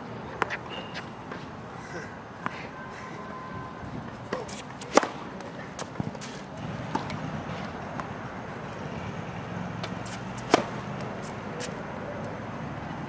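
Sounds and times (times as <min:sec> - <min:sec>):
racket striking tennis ball: 0:04.3 - 0:07.2, 0:09.8 - 0:11.8.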